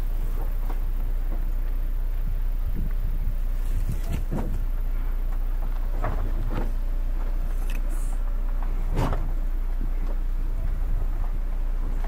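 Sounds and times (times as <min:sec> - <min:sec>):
vehicle rumbling on dirt track: 0:00.0 - 0:12.0
wheels knocking on loose stones: 0:00.0 - 0:12.0.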